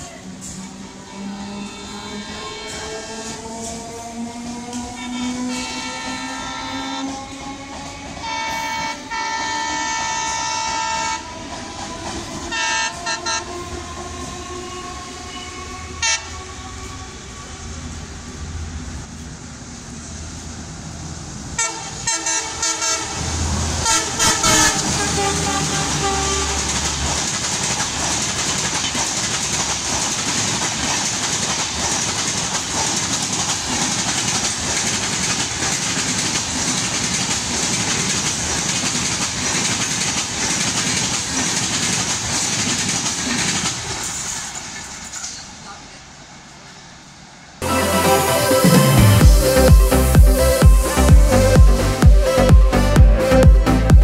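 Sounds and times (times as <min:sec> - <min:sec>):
rail clatter and wheel noise: 0:00.0 - 0:49.9
diesel locomotive engine drone: 0:00.0 - 0:54.0
train horn blasts: 0:00.2 - 0:03.3, 0:04.7 - 0:07.4, 0:08.2 - 0:17.4, 0:21.6 - 0:26.8.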